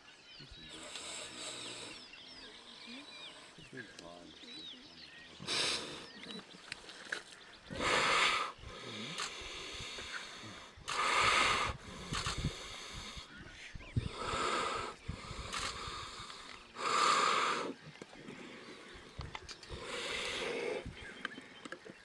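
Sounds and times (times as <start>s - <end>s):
buffalo wheezing breaths: 5.4s - 6.2s, 7.7s - 21.6s.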